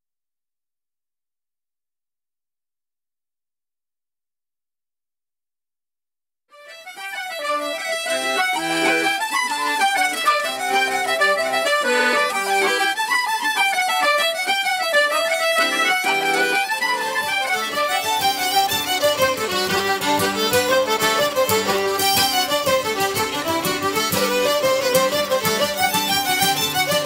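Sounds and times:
fiddle dance tune: 6.5s - 27.0s
sustained accompanying notes: 6.7s - 27.0s.

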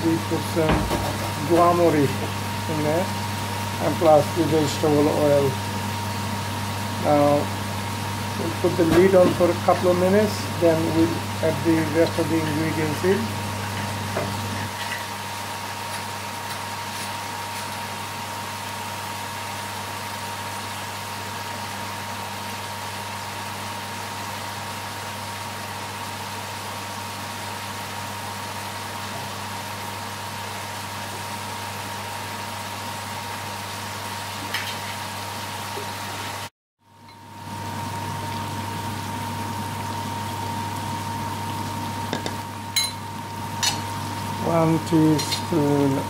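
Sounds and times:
low mechanical hum: 0.0s - 46.0s.

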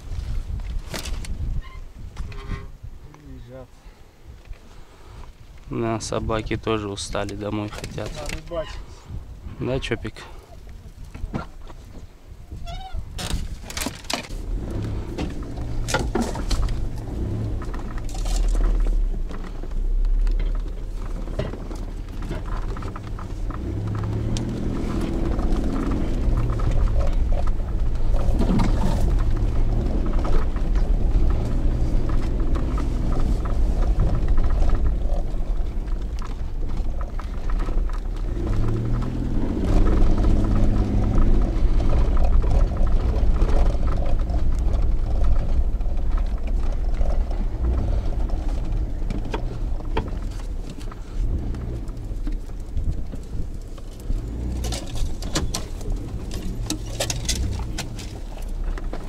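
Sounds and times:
branches scraping vehicle side: 0.0s - 3.7s, 4.5s - 59.0s
vehicle body knocks and rattles: 13.1s - 59.0s
car engine running: 13.9s - 59.0s.

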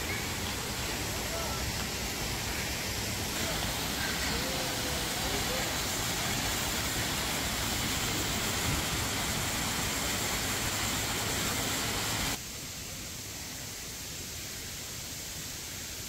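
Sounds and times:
waterfall rushing: 0.0s - 12.4s.

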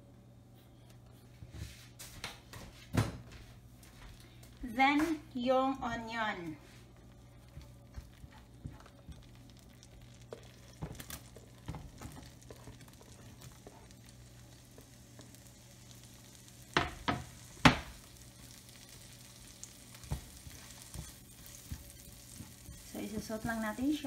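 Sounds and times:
onion frying in pan: 3.8s - 24.0s
sharp knocks against pan: 16.8s - 18.0s.

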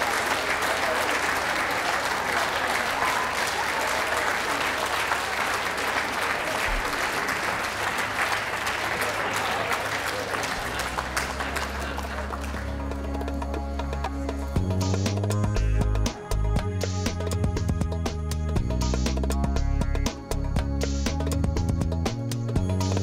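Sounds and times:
audience applauding: 0.0s - 13.8s
music: 9.8s - 23.0s.

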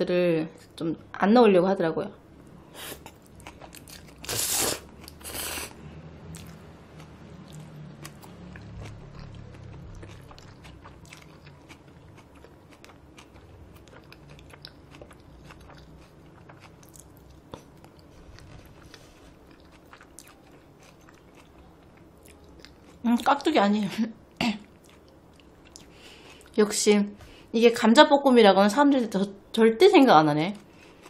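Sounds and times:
person slurping noodles: 4.2s - 5.8s
wet chewing: 6.3s - 23.0s.

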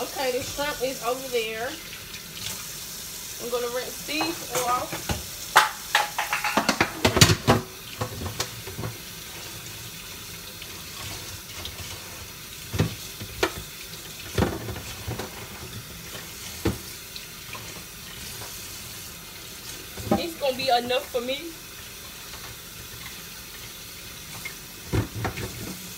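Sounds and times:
kitchen tap running: 0.0s - 25.9s
dishes knocking: 4.2s - 7.7s.

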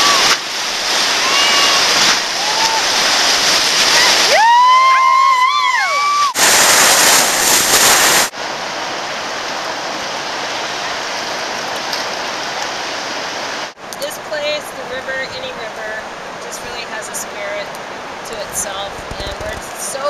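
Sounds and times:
whitewater rapids rushing: 0.0s - 20.0s
high-pitched whoop: 1.2s - 3.2s, 3.9s - 6.4s.

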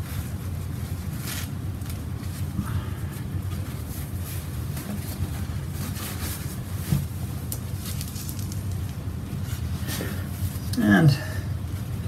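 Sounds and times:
paper towel rustling: 0.0s - 10.7s
steady low hum: 0.0s - 12.0s.

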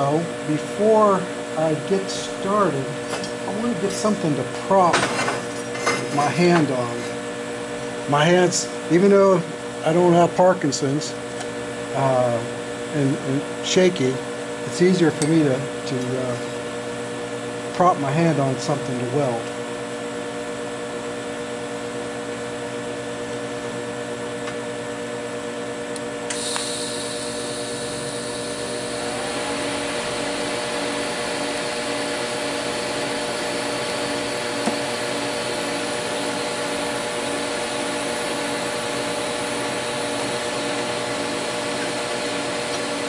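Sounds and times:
welding machine hum: 0.0s - 22.2s, 23.0s - 43.0s
welding arc hissing and buzzing: 26.2s - 43.0s.

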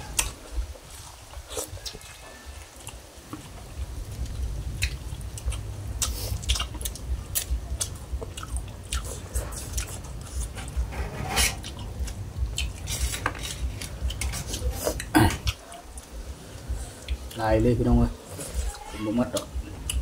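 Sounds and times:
people chewing: 0.0s - 20.0s
low rumble: 3.6s - 18.2s.

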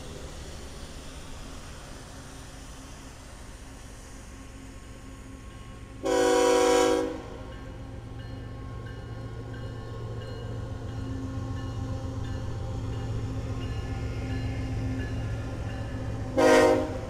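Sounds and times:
diesel locomotives rumbling: 0.0s - 17.0s
train air horn blast: 6.0s - 7.4s, 16.4s - 17.0s.

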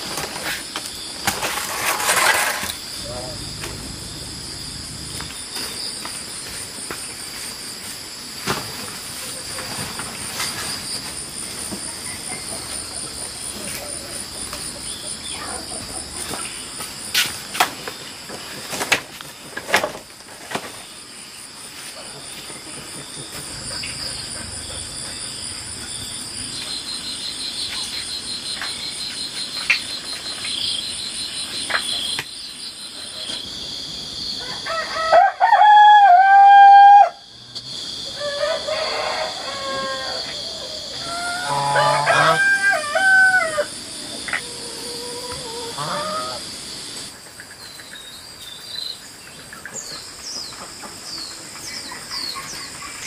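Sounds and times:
insects chirring: 0.0s - 53.0s
rooster crowing: 34.4s - 37.3s, 38.1s - 43.8s.

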